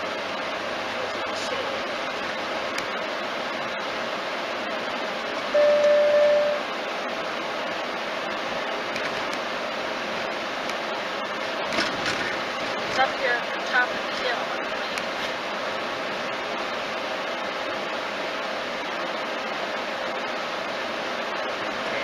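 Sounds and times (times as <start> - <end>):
car road and engine noise: 0.0 - 22.0
electronic beep: 5.6 - 6.6.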